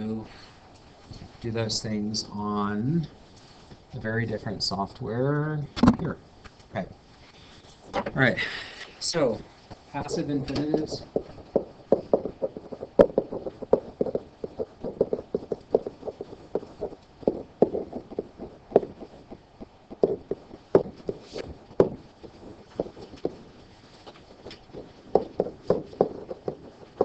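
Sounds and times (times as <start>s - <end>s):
stylus tapping on writing surface: 10.5s - 27.0s.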